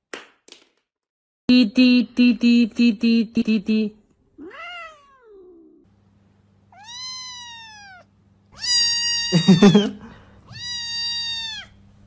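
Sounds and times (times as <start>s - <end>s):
cat meowing: 4.4s - 5.8s, 6.7s - 9.8s, 10.5s - 11.8s.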